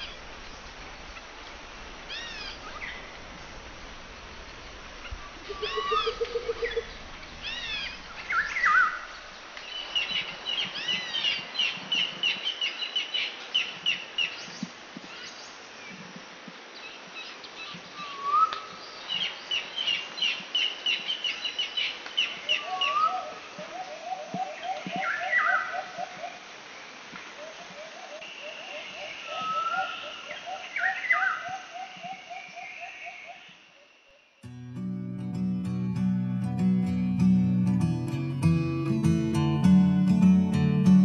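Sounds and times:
wild birds singing: 0:02.1 - 0:03.6, 0:04.2 - 0:14.6.

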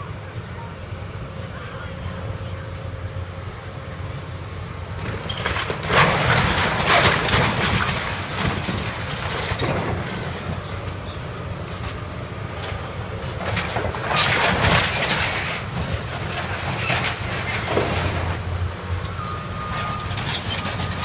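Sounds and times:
diesel engine running: 0:00.0 - 0:21.0
sheet metal crunching and crashing: 0:05.2 - 0:10.8, 0:13.4 - 0:18.4.

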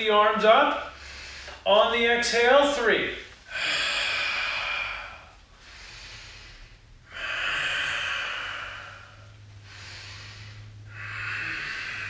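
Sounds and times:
man breathing deeply: 0:00.8 - 0:01.7, 0:03.4 - 0:12.0.

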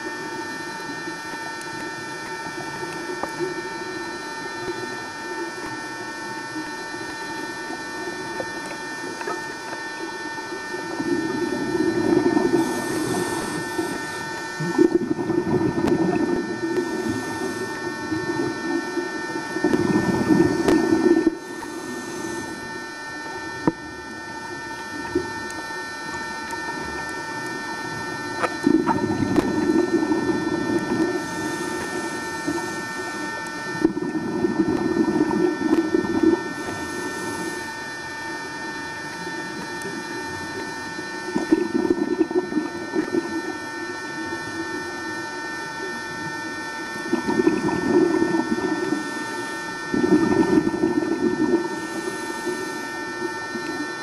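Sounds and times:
steady high whine: 0:00.0 - 0:54.0
diver exhaling bubbles underwater: 0:10.6 - 0:22.8, 0:26.7 - 0:37.8, 0:41.2 - 0:43.6, 0:47.0 - 0:54.0.

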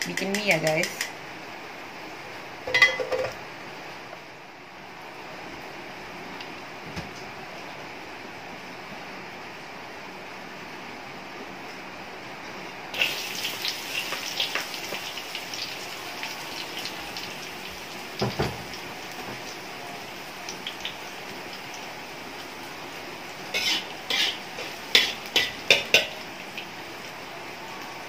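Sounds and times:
food sizzling in hot oil: 0:12.9 - 0:28.0
spatula scraping a wok: 0:23.5 - 0:26.2.

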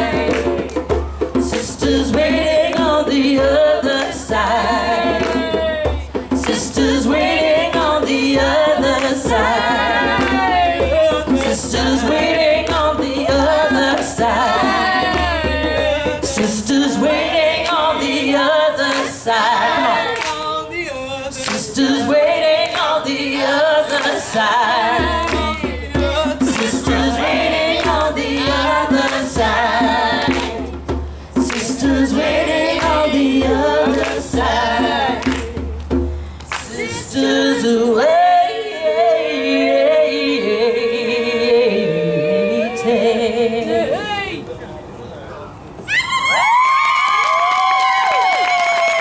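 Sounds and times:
djembe drums: 0:00.0 - 0:18.1, 0:23.8 - 0:36.4
women singing in harmony: 0:00.0 - 0:30.8, 0:31.4 - 0:35.6, 0:36.5 - 0:44.2.

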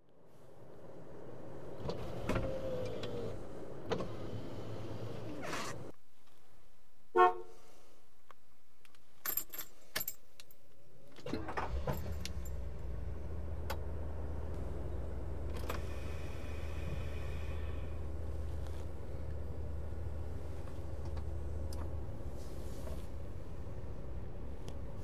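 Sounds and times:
keys jingling in ignition: 0:09.2 - 0:10.7, 0:11.7 - 0:12.7
car engine starting and idling: 0:11.1 - 0:25.0.

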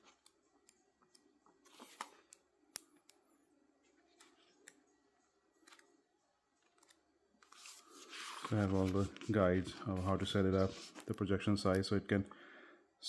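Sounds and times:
pages being turned: 0:01.6 - 0:02.3, 0:06.7 - 0:11.2.

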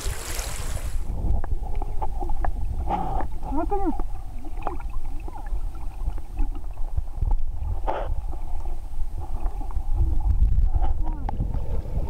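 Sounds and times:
rush of water noise: 0:00.0 - 0:02.4
muffled underwater rumble: 0:00.8 - 0:12.0.

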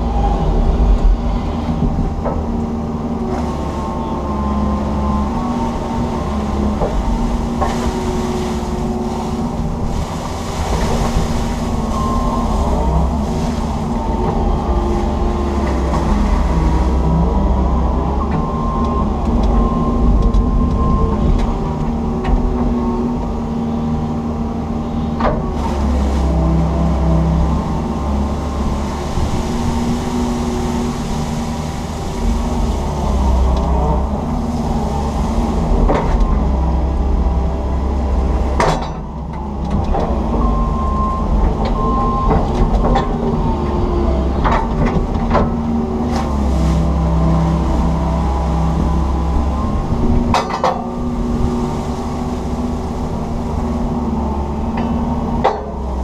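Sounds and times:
excavator engine and hydraulics: 0:00.0 - 0:56.0.

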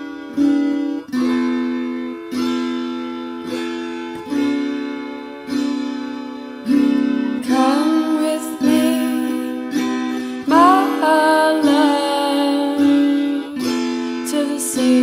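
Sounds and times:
plucked guitar notes: 0:00.0 - 0:15.0.

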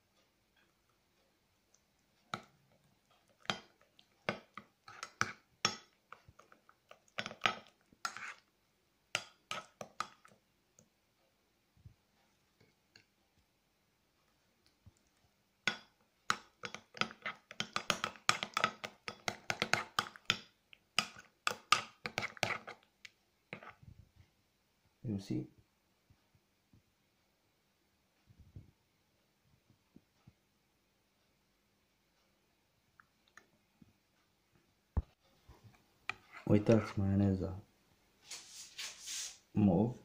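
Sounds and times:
spoon scraping ceramic mug: 0:03.4 - 0:05.9, 0:07.1 - 0:08.5, 0:16.6 - 0:20.4, 0:21.0 - 0:22.8, 0:23.5 - 0:23.8.

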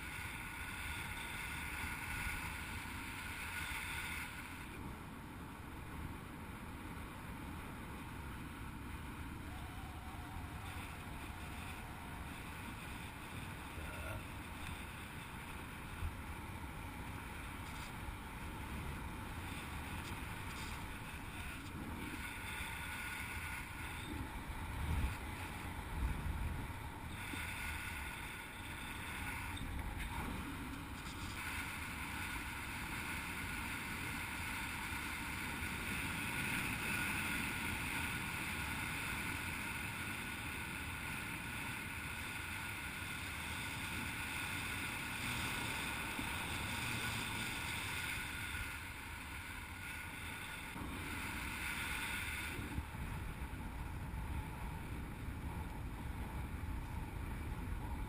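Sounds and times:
wind rushing over microphone: 0:07.7 - 0:41.9, 0:50.7 - 0:58.0.

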